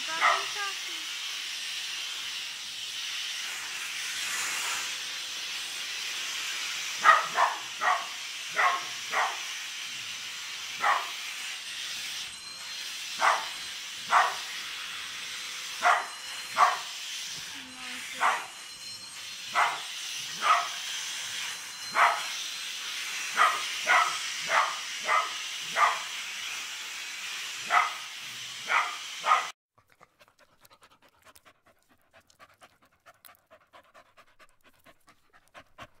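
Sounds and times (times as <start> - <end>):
vacuum cleaner hiss: 0.0 - 29.6
dog barking: 0.1 - 0.6, 7.0 - 9.4, 10.8 - 11.2, 13.2 - 13.5, 14.1 - 14.4, 15.8 - 16.9, 19.6 - 20.8, 22.0 - 22.3, 23.4 - 26.1, 27.7 - 28.0, 28.6 - 29.5
animal panting quickly: 29.8 - 36.0.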